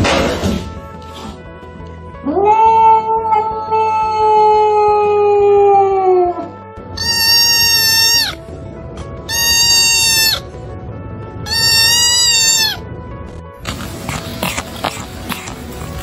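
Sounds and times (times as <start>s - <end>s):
kitten crying: 7.0s - 8.4s, 9.3s - 10.5s, 11.5s - 12.8s.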